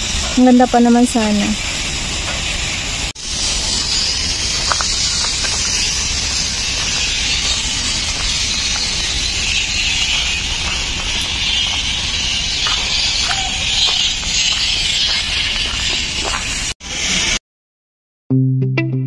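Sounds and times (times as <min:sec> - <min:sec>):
low rumble: 0:00.0 - 0:16.7
steady outdoor hiss: 0:00.0 - 0:16.8.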